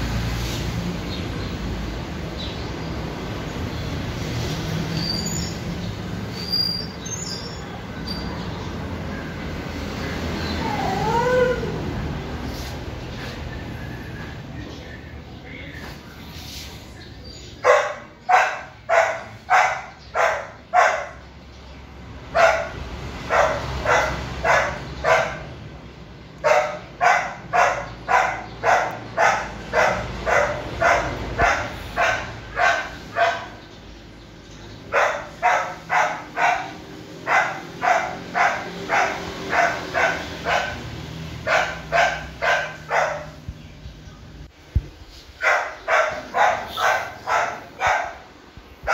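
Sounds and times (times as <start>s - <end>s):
puppy barking: 17.6s - 21.3s, 22.3s - 25.6s, 26.4s - 33.6s, 34.9s - 43.5s, 45.4s - 48.9s.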